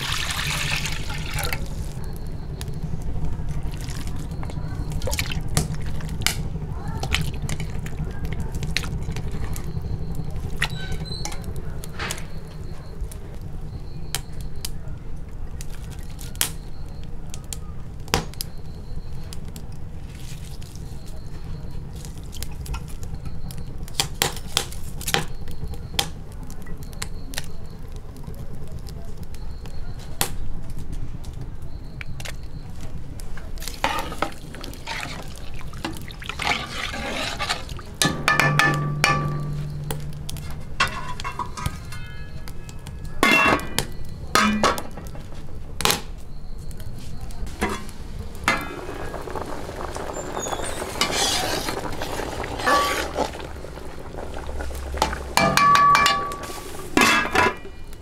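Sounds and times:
steady low rumble: 1.5 - 10.7, 37.8 - 43.2, 43.9 - 57.0
small water splashes: 33.7 - 37.8
steel plate clinking against pot: 36.4 - 42.6, 43.2 - 45.0, 55.4 - 57.7.

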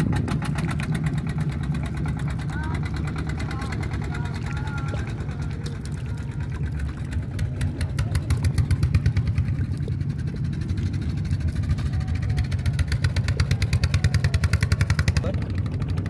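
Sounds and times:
small engine chugging: 0.0 - 16.0.

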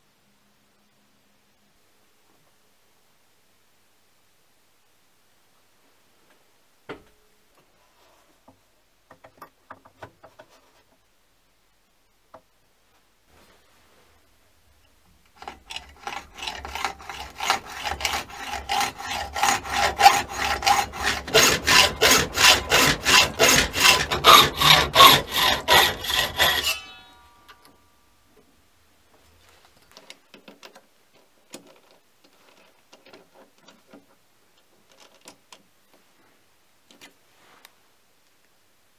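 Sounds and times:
hacksaw cutting metal: 15.4 - 27.7
metallic ring: 26.6 - 27.9.

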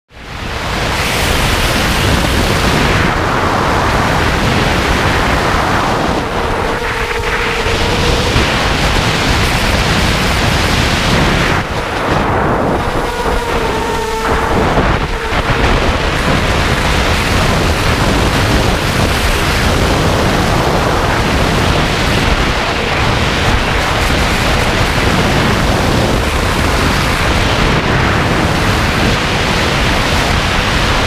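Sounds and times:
rushing wind on microphone: 0.1 - 31.0
drone motors whining: 3.4 - 26.8.

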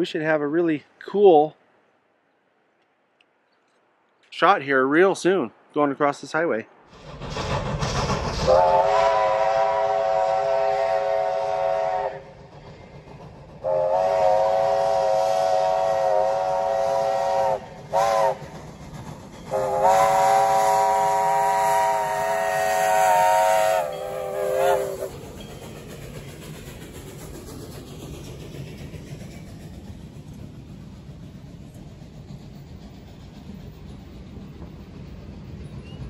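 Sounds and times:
rushing noise: 5.2 - 14.0
steam locomotive whistle: 8.4 - 12.4, 13.6 - 18.5, 19.5 - 25.2.

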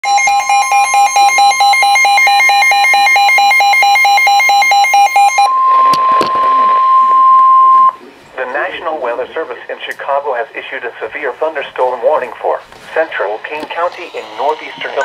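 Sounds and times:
rapid pulsed alarm beeping: 0.0 - 8.0, 13.8 - 15.0
steady radio warning tone: 5.3 - 15.0.

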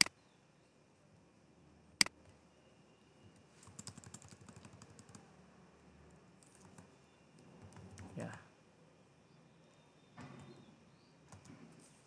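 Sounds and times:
computer keyboard typing: 3.4 - 5.3, 6.4 - 8.5, 11.3 - 11.6.

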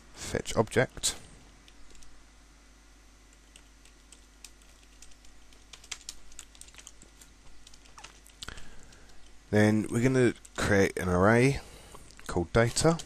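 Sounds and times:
keyboard typing: 3.3 - 9.4.

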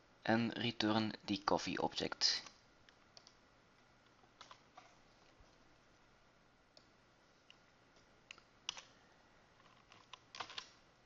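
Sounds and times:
keyboard and mouse clicks: 2.4 - 3.4, 4.3 - 5.0, 8.3 - 8.9.

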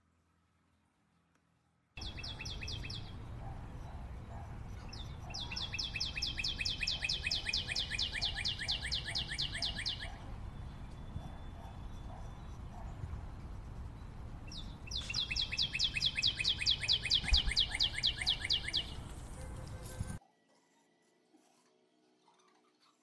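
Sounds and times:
steady low background noise: 0.0 - 19.9
bird trilling chirps: 2.0 - 4.0, 4.8 - 13.0, 13.8 - 19.1.

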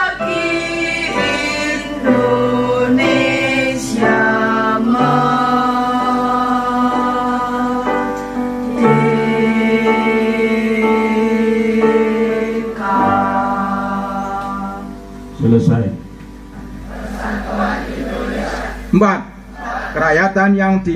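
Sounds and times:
choir singing held chords: 0.0 - 20.5.

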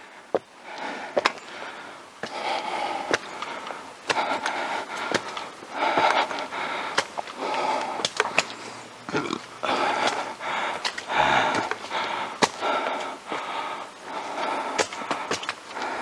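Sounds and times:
person breathing hard: 0.0 - 9.0, 9.6 - 16.0.

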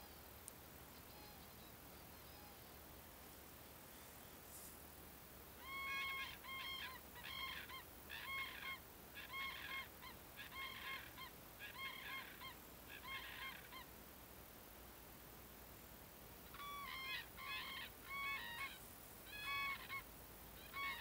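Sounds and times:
cranes honking calls: 5.6 - 13.9, 16.5 - 21.0.

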